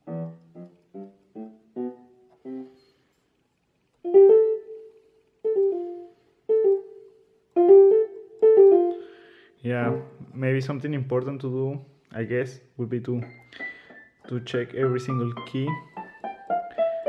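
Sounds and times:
digital piano notes: 0.0s - 3.0s, 4.0s - 10.2s, 13.1s - 17.0s.

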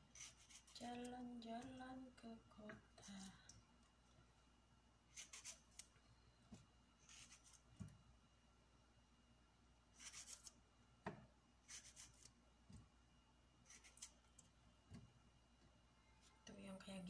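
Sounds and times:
knife slicing tomatoes: 0.0s - 1.7s, 5.1s - 5.9s, 7.0s - 7.9s, 9.9s - 10.6s, 11.6s - 12.4s, 13.6s - 14.2s.

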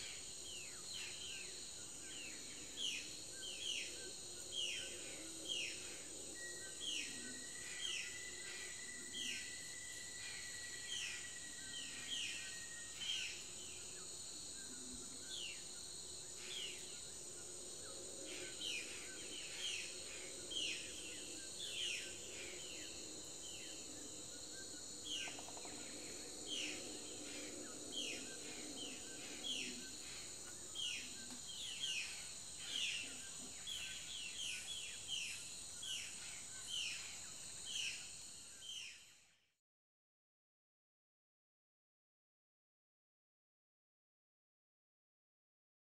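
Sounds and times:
high-pitched insect drone: 2.2s - 13.8s.

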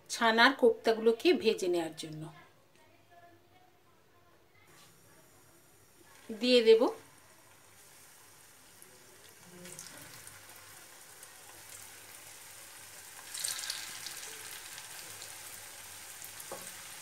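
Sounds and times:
balls sizzling in hot oil: 4.7s - 17.0s.

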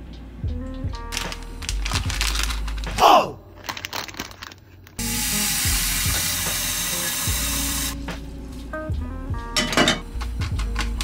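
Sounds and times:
tap water running into pot: 5.0s - 8.0s.

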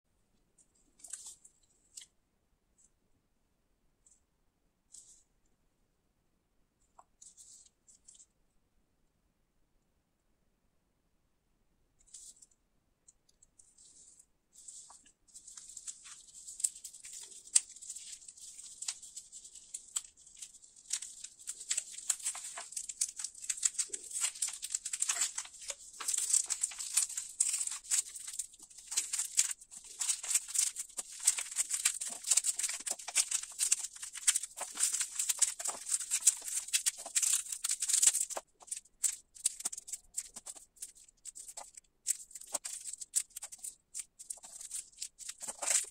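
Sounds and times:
foil paper wrapper crinkling: 13.8s - 45.9s.

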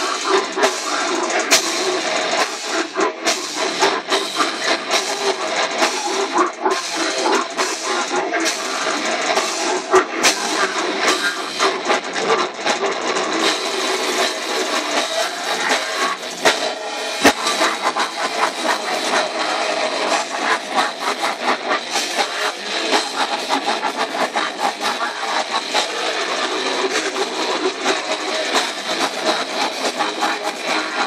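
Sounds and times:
death metal band playing live: 0.0s - 31.0s.

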